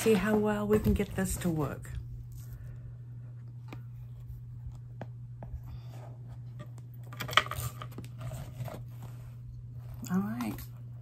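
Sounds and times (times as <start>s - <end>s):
crinkling scrape: 0.0s - 2.6s, 7.4s - 10.7s
steady low hum: 0.0s - 11.0s.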